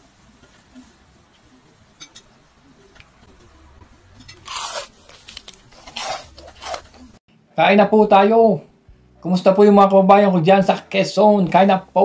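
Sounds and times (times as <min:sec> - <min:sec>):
crunching eating sounds: 0:04.1 - 0:07.2.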